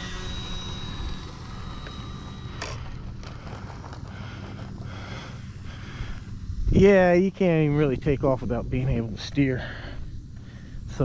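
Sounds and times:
electric motor whine: 0.0 - 11.0
wind rumbling on microphone: 5.9 - 9.2.

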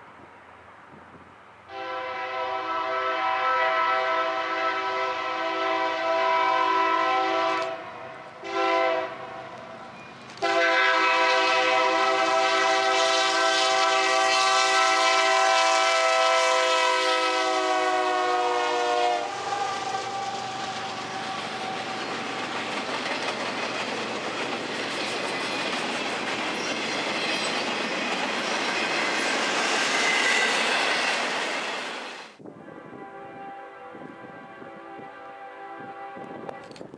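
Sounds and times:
locomotive air horn: 1.7 - 9.6, 10.4 - 22.2, 32.5 - 36.8
train rumble and clickety-clack: 5.1 - 32.4.

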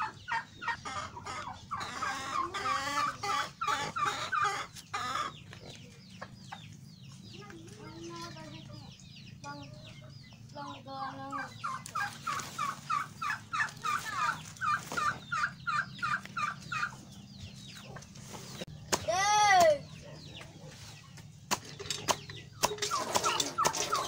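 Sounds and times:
chicken squawk: 0.0 - 5.5, 11.3 - 17.0
chicken chirping: 0.0 - 18.9, 19.8 - 24.0
chickens clucking: 0.0 - 24.0.

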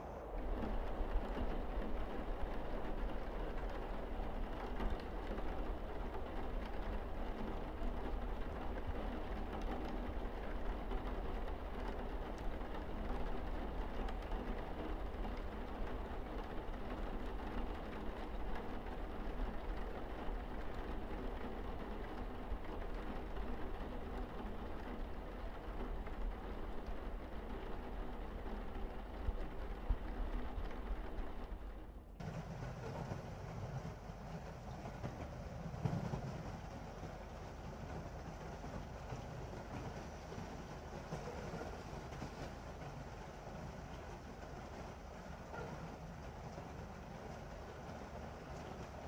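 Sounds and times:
rain on roof and windows: 0.1 - 49.0.

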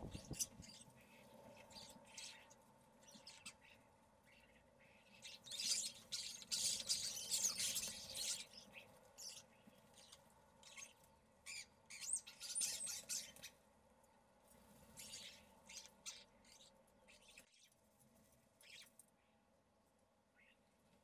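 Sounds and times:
starlings squawking and chattering: 0.0 - 13.6, 15.0 - 17.7.

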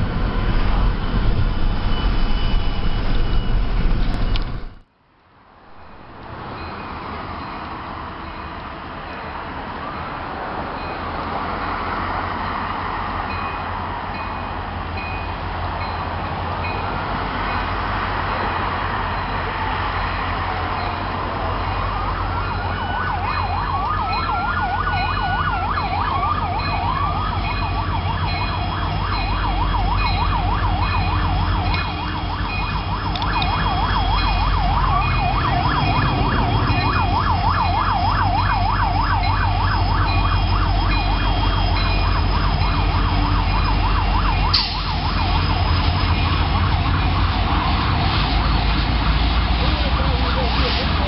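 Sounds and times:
road traffic: 0.0 - 51.0
train rumbling: 0.0 - 51.0
emergency siren wailing and yelping: 19.2 - 50.8.

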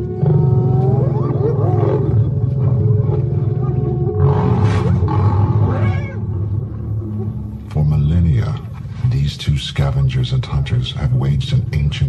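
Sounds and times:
hyena calls: 0.0 - 6.4
lions growling and snarling: 0.0 - 7.7.

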